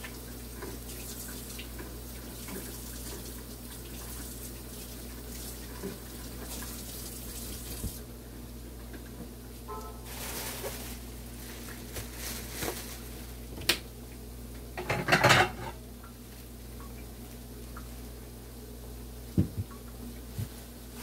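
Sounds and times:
dishes and utensils clattering: 0:14.8 - 0:15.8.

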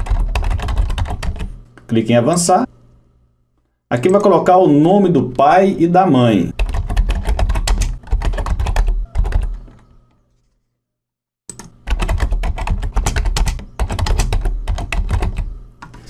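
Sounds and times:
rapid typing on keyboard: 0:00.0 - 0:01.5, 0:06.5 - 0:09.8, 0:11.5 - 0:15.5.

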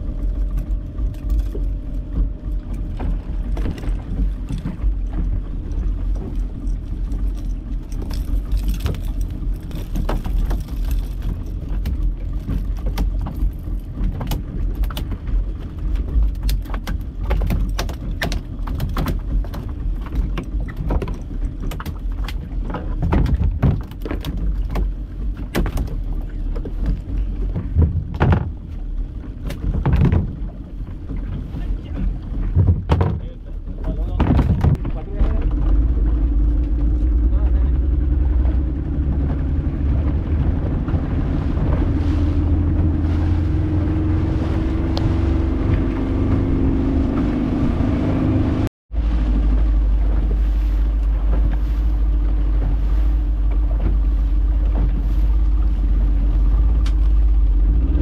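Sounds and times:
boat motor running: 0:00.0 - 0:58.0
water noise: 0:00.0 - 0:58.0
wind: 0:00.0 - 0:58.0
fishing gear clicks and knocks: 0:00.3 - 0:28.7, 0:29.3 - 0:31.4.

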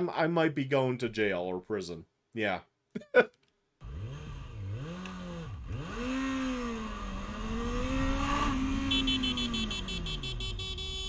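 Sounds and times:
motorcycle engine revving: 0:03.8 - 0:11.0.

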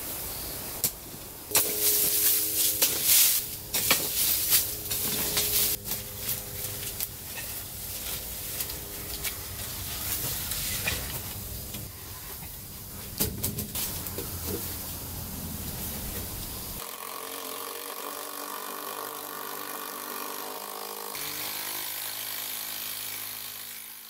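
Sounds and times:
hoe chopping and scraping soil: 0:00.8 - 0:11.4.

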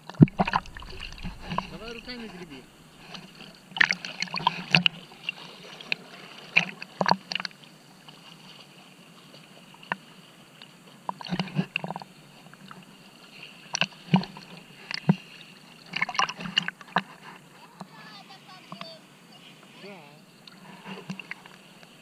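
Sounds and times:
water splashing: 0:00.0 - 0:07.2.

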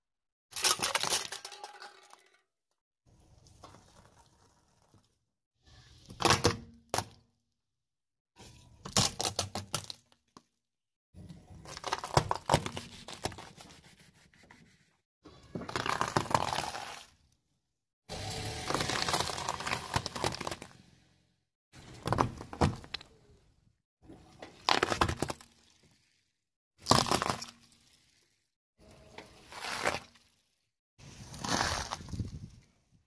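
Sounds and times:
vegetables crunching and snapping: 0:15.6 - 0:17.1, 0:18.4 - 0:20.8, 0:26.8 - 0:27.6, 0:31.3 - 0:32.4
car tyre crushing cans: 0:18.1 - 0:20.8.

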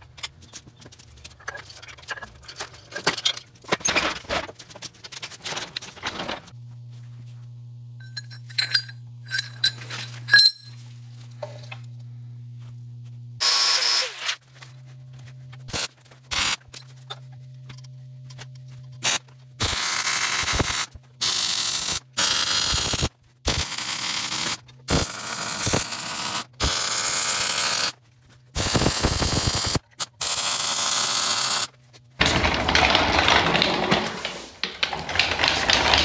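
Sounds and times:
low electrical hum: 0:00.0 - 0:21.2.

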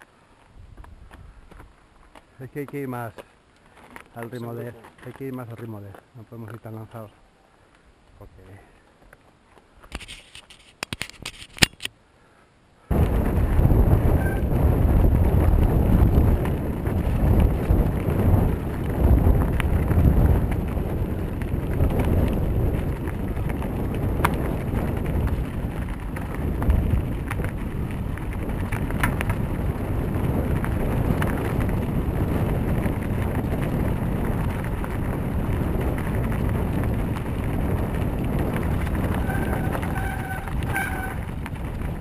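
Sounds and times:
bike clicks and rattles: 0:00.0 - 0:06.6, 0:09.0 - 0:11.9, 0:15.3 - 0:42.0
tyres rumbling: 0:12.9 - 0:42.0
wind buffeting microphone: 0:12.9 - 0:42.0.

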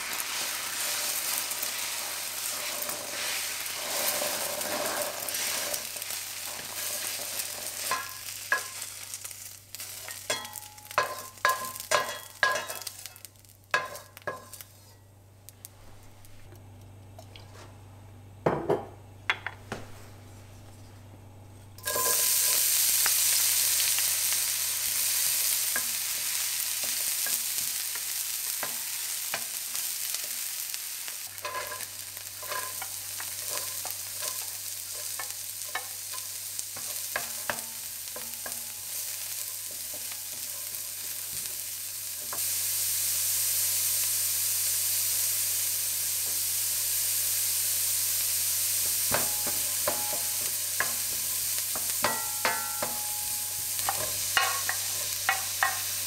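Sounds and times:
vegetables sizzling in hot oil: 0:00.0 - 0:14.9, 0:21.8 - 0:56.0
spatula scraping a pan: 0:00.2 - 0:08.9, 0:21.8 - 0:22.9, 0:31.4 - 0:41.5, 0:49.0 - 0:56.0.

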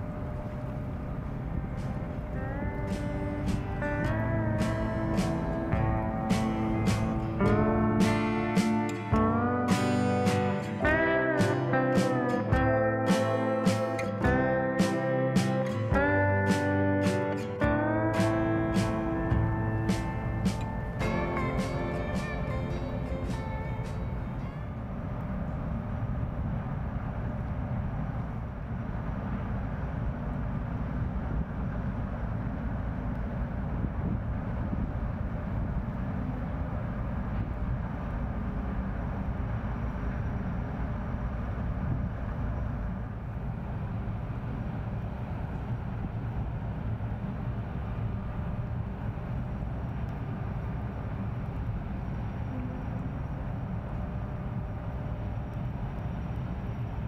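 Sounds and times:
boat diesel engine droning: 0:00.0 - 0:57.0
faint steady tones: 0:00.0 - 0:57.0.

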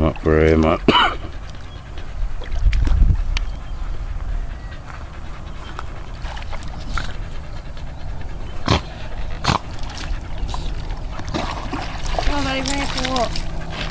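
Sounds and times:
dog panting while swimming: 0:00.0 - 0:13.9
water splashing: 0:09.4 - 0:13.9.

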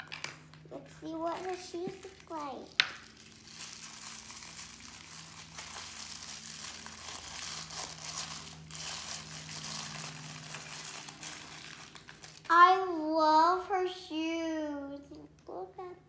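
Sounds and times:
tissue paper crinkling: 0:01.3 - 0:12.5.

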